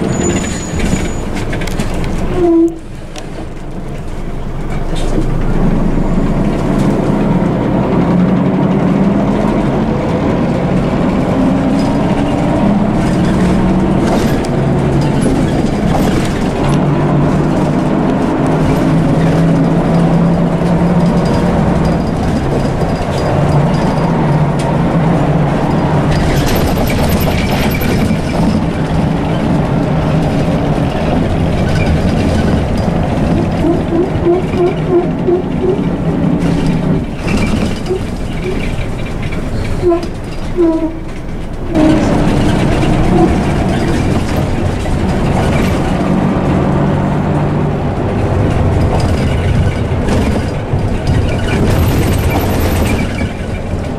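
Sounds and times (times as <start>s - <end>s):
short squeaks: 0.0s - 1.6s, 33.4s - 35.9s, 37.3s - 44.0s
bus engine drone: 0.0s - 53.9s
rattling interior noise: 0.0s - 53.9s.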